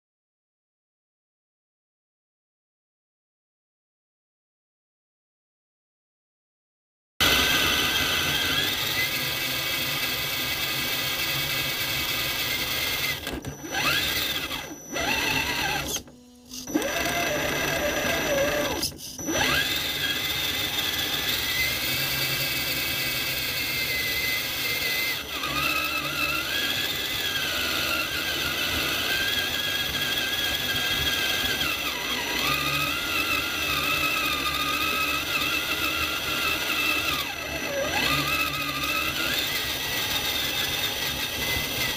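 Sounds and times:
toy truck electric motor whining: 0:07.2 - 0:41.9.

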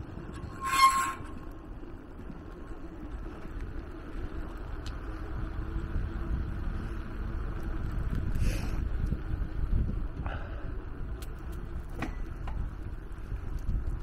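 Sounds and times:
bicycle tyres rolling: 0:00.0 - 0:14.0
brief high squeal: 0:00.4 - 0:01.4
wind on microphone: 0:05.2 - 0:14.0.

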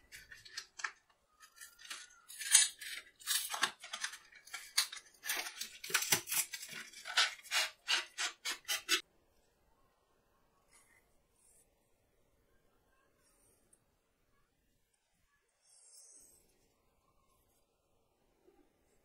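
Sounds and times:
packaging rustling and crackling: 0:00.0 - 0:09.0.

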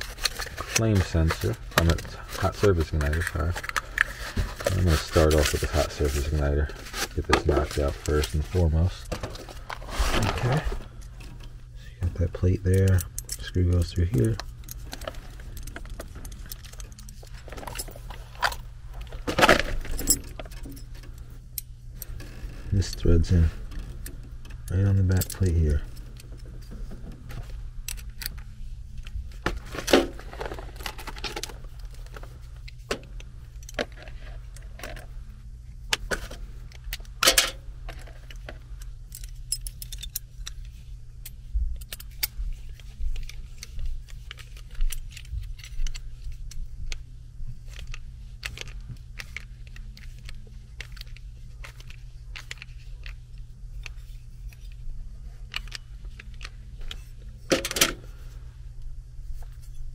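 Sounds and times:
steady low hum: 0:00.0 - 0:59.9
metal parts clinking: 0:12.6 - 0:22.1, 0:37.2 - 0:38.4, 0:39.1 - 0:40.6.

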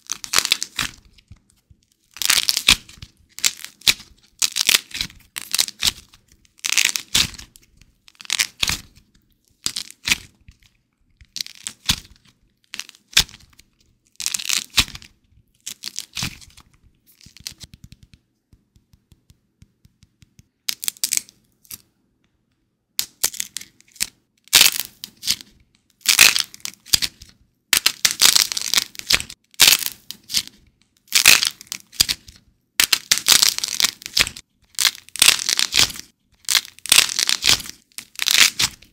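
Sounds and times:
clay crust cracking and crumbling: 0:00.0 - 0:18.6, 0:20.2 - 0:21.9, 0:23.0 - 0:38.9.

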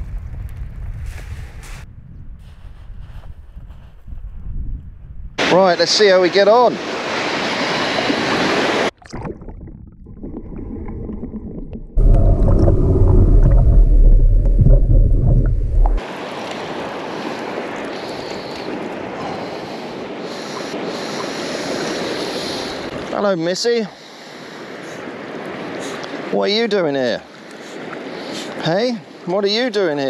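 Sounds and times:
waves washing: 0:05.4 - 0:09.0, 0:10.2 - 0:30.0
muffled underwater rumble: 0:09.2 - 0:16.0.

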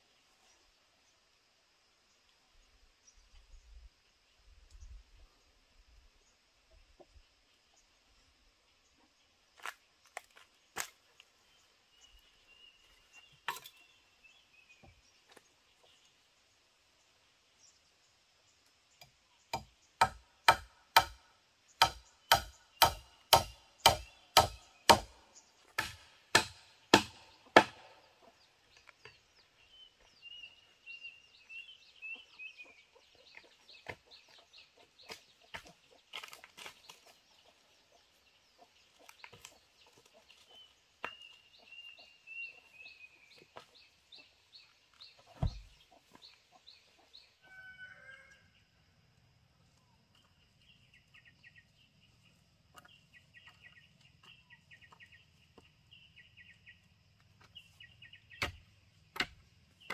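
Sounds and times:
hand tool striking bamboo: 0:19.0 - 0:21.2, 0:21.8 - 0:28.0, 0:58.3 - 0:59.9.

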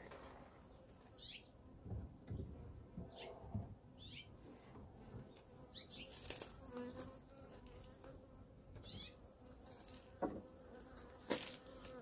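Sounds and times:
bees buzzing: 0:05.7 - 0:12.0.

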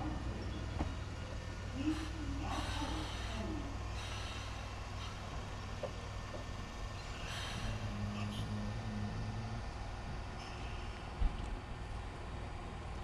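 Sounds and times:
faint voices: 0:00.0 - 0:04.3
train low hum: 0:00.0 - 0:13.0.

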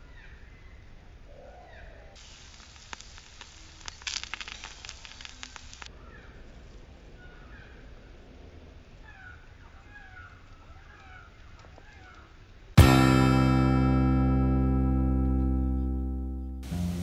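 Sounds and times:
food sizzling on griddle: 0:02.2 - 0:05.9
faint chirps: 0:02.2 - 0:06.3.

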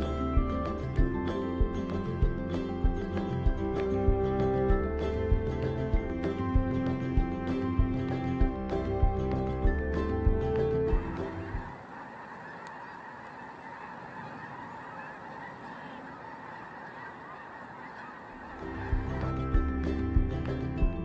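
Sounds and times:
background music: 0:00.0 - 0:11.8, 0:18.4 - 0:21.0
flock of geese calling: 0:02.6 - 0:19.7.

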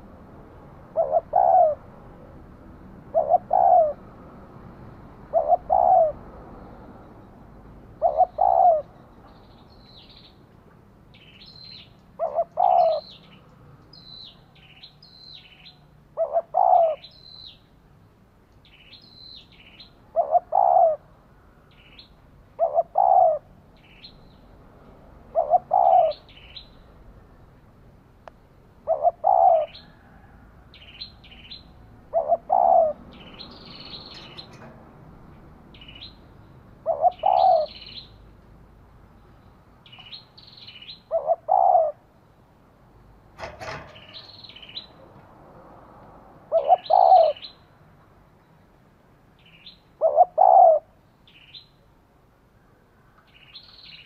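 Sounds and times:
dove cooing: 0:00.8 - 0:02.3, 0:03.0 - 0:04.1, 0:05.3 - 0:06.2, 0:08.0 - 0:09.0, 0:12.2 - 0:13.2, 0:16.2 - 0:17.1, 0:20.1 - 0:21.1, 0:22.6 - 0:23.5, 0:25.3 - 0:26.4, 0:28.8 - 0:30.3, 0:32.0 - 0:33.2, 0:36.8 - 0:37.9, 0:41.1 - 0:42.1, 0:46.5 - 0:47.5, 0:50.0 - 0:50.9
small birds chirping: 0:05.3 - 0:17.8, 0:18.5 - 0:21.0, 0:21.6 - 0:24.6, 0:25.3 - 0:27.6, 0:30.7 - 0:34.7, 0:35.7 - 0:38.4, 0:39.0 - 0:42.0, 0:43.9 - 0:45.2, 0:46.5 - 0:47.7, 0:49.4 - 0:51.8, 0:52.9 - 0:54.0.

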